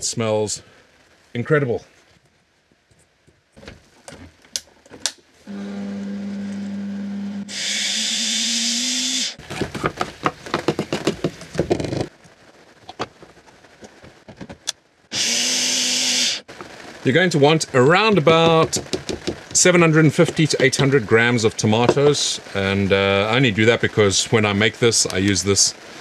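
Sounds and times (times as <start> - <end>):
blender motor grinding: 5.5 - 9.4, 15.1 - 16.4.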